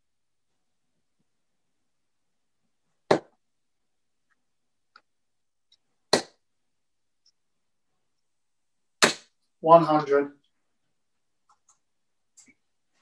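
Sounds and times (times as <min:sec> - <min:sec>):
darts thudding into dartboard: 0:03.1 - 0:03.4, 0:06.1 - 0:06.4.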